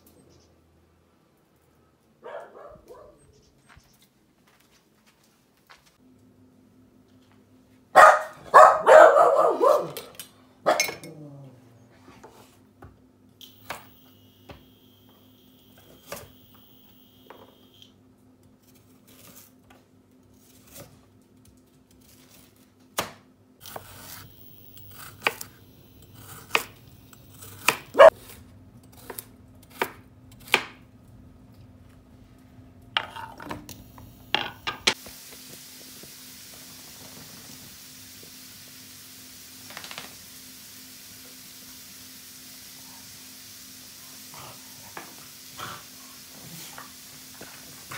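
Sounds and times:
knife chopping on wooden board: 27.4s - 28.4s
steady hiss: 33.7s - 47.9s.

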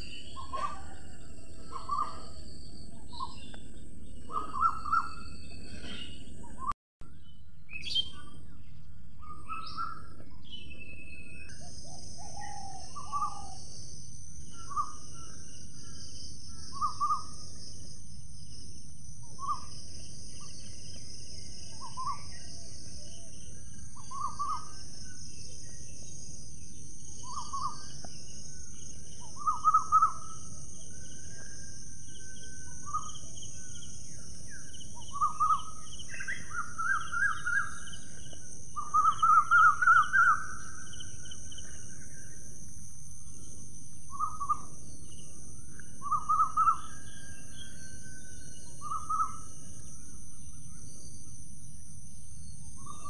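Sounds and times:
high-pitched insect drone: 11.5s - 53.0s.

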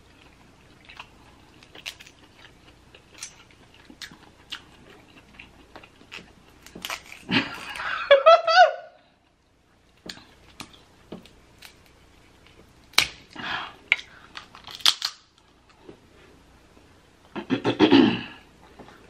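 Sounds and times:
close-up eating sounds: 0.0s - 8.0s
crab shells cracking: 6.1s - 7.8s, 11.6s - 12.0s, 12.8s - 15.5s.

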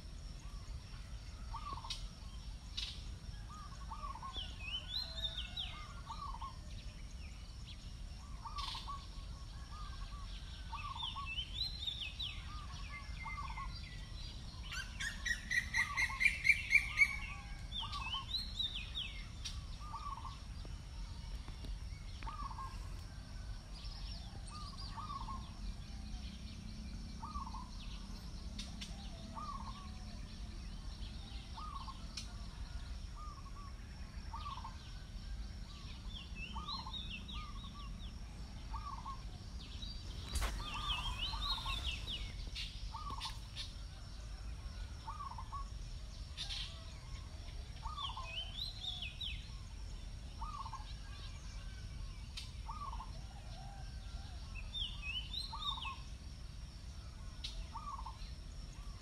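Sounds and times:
birds chirping high: 1.4s - 33.7s, 34.3s - 35.0s, 35.8s - 43.9s, 45.0s - 53.8s, 57.4s - 59.0s
loud rising bird trill: 40.1s - 43.4s.

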